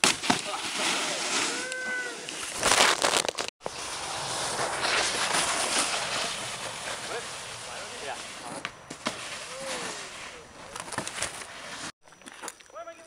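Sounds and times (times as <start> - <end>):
snowboard scraping over wet snow: 0.2 - 11.9
person shouting: 1.5 - 2.3.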